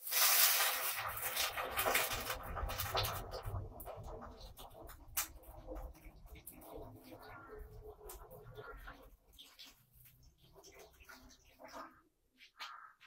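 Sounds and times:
water pouring into a pot: 0.0s - 12.1s.

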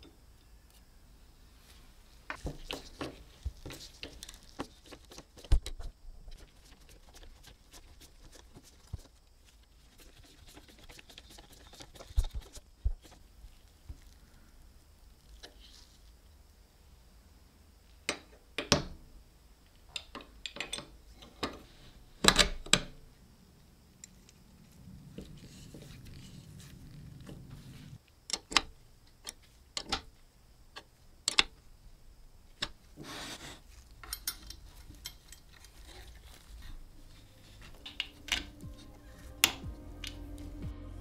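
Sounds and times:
metal parts clicking and tapping: 19.9s - 21.6s, 34.0s - 36.0s
soft rubbing: 24.2s - 28.0s, 34.6s - 39.4s.

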